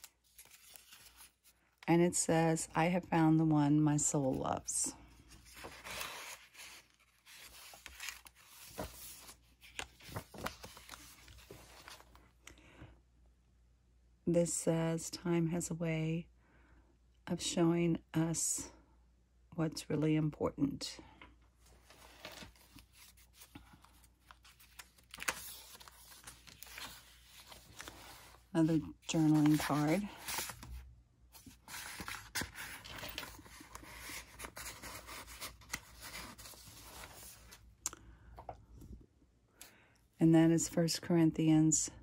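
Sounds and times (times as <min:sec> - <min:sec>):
paper rustling: 0:00.0 - 0:01.5, 0:05.2 - 0:12.2, 0:21.6 - 0:37.6.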